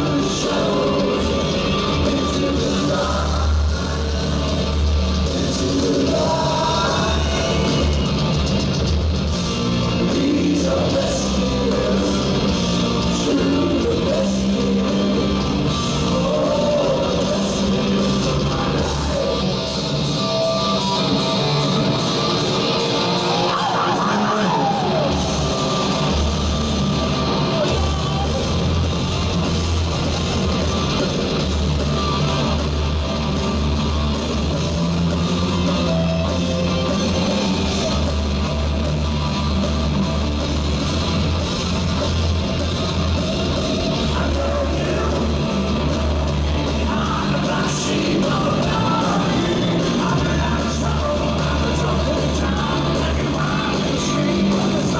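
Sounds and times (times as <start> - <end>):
man singing and yelling: 0.0 - 8.2, 9.7 - 20.0, 23.1 - 26.2, 27.2 - 28.8, 43.4 - 54.9
hard rock band playing: 0.0 - 54.9.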